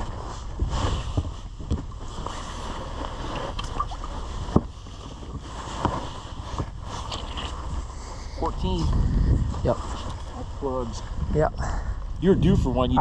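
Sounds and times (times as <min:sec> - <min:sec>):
knocks and clunks on a boat: 0:00.0 - 0:06.8
low rumble: 0:07.5 - 0:13.0.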